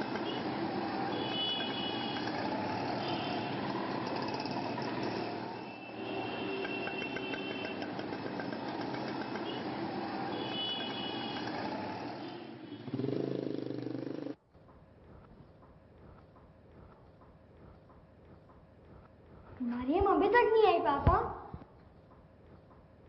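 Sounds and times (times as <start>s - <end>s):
vehicle engine and traffic noise: 0.0s - 17.0s.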